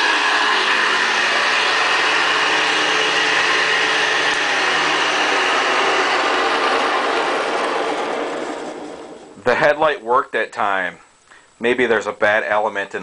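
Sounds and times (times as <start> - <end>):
upright vacuum cleaner running: 0.0 - 9.9.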